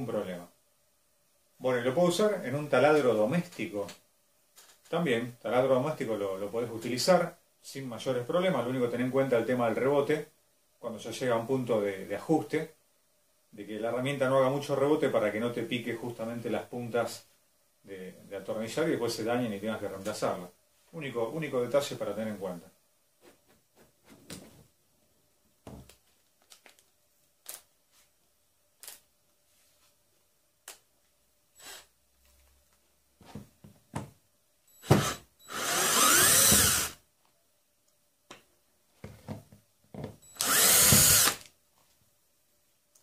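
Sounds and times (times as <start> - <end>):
cordless drill running: 34.8 - 37.0, 40.3 - 41.5.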